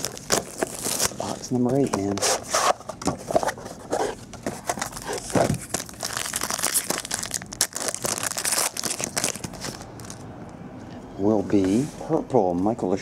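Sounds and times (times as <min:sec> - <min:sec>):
plastic wrapper crinkling and tearing: 0:00.0 - 0:01.8, 0:04.6 - 0:10.2.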